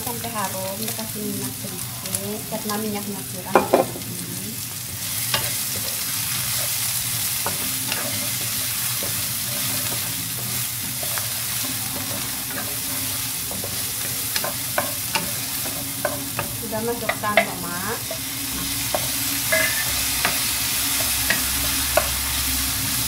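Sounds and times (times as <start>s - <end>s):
garlic sizzling in oil: 0.0s - 23.0s
wooden spatula knocking pan: 3.6s - 4.0s.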